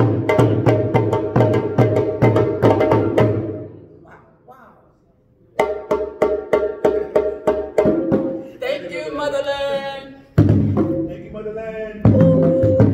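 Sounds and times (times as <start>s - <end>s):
stick-played drum: 0.0s - 3.7s, 5.6s - 8.5s, 10.3s - 12.9s
djembe played by hand: 0.0s - 3.8s, 5.6s - 8.5s, 10.4s - 11.2s, 12.0s - 12.9s.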